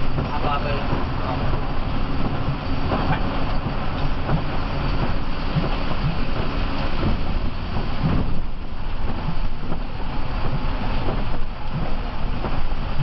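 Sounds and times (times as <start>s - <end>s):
bus diesel engine rumble: 0.0s - 13.0s
tyres hissing on wet road: 0.0s - 13.0s.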